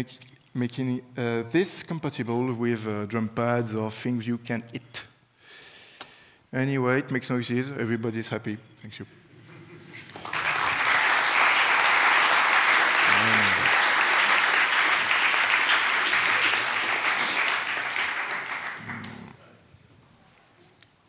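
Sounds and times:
audience applauding: 0:10.0 - 0:19.4.

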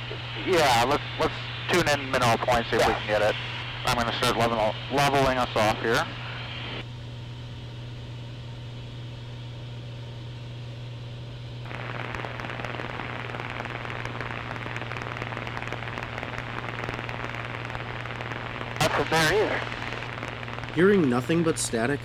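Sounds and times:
radio static crackling: 0:00.0 - 0:06.8, 0:11.7 - 0:22.0
steady low hum: 0:00.0 - 0:22.0.

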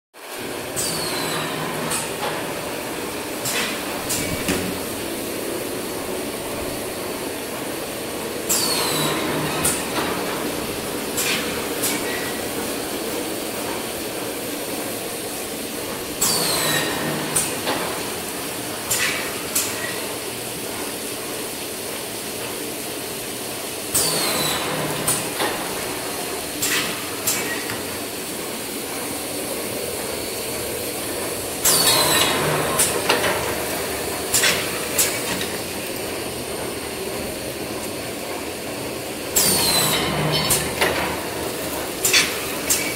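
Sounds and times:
sharp knocks: 0:04.1 - 0:05.0.

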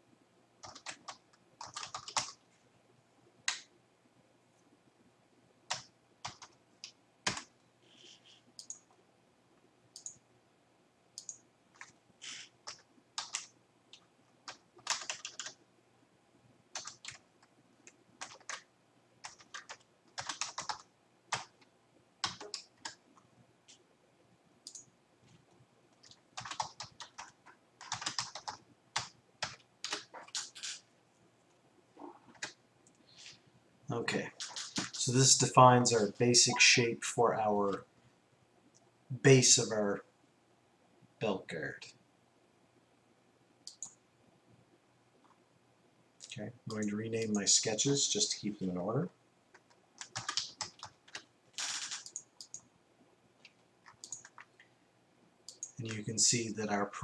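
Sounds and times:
keyboard typing: 0:00.6 - 0:02.4, 0:05.7 - 0:09.0, 0:09.9 - 0:10.2, 0:11.2 - 0:15.6, 0:16.7 - 0:23.0, 0:24.6 - 0:24.9, 0:25.9 - 0:30.8, 0:32.1 - 0:33.0, 0:34.3 - 0:35.0, 0:43.6 - 0:44.0, 0:49.5 - 0:52.7, 0:53.4 - 0:54.7, 0:55.5 - 0:56.1.

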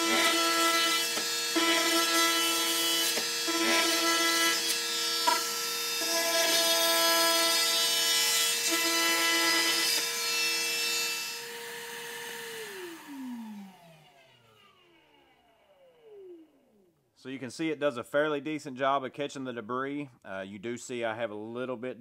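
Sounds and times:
oscillating multi-tool buzzing: 0:00.0 - 0:16.8
vacuum whine: 0:11.1 - 0:16.9.

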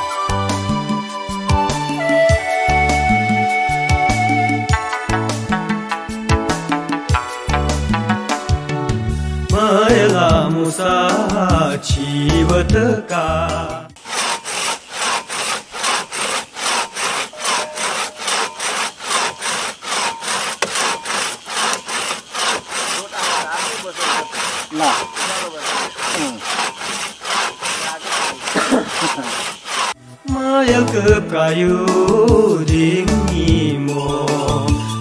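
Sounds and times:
hand saw cutting wood: 0:14.0 - 0:30.0.

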